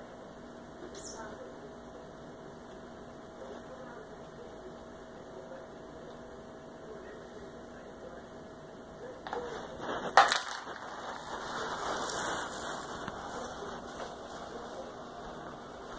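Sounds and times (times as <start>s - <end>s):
rustling and scuffling: 9.3s - 15.9s.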